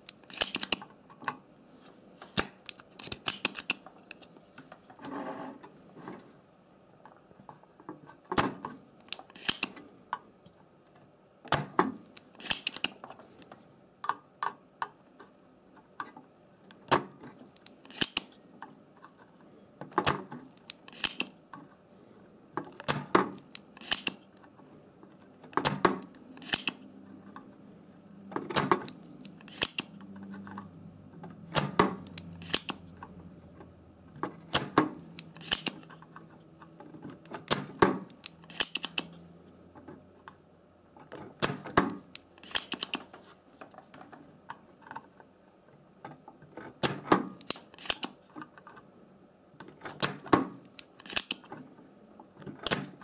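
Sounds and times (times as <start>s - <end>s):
desoldering pump snapping: 0.0s - 0.8s, 2.4s - 4.2s, 9.0s - 9.7s, 12.2s - 13.0s, 17.6s - 18.3s, 20.6s - 21.3s, 22.8s - 24.2s, 25.5s - 26.8s, 28.5s - 30.1s, 31.5s - 32.9s, 34.5s - 35.9s, 37.2s - 39.2s, 41.4s - 43.1s, 47.4s - 48.2s, 50.0s - 51.5s.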